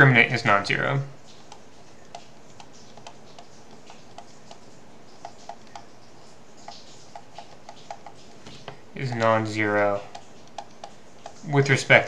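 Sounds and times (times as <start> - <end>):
faint steady hiss: 0.0 - 12.0
stylus tapping on pen tablet: 1.5 - 6.0, 6.6 - 9.3.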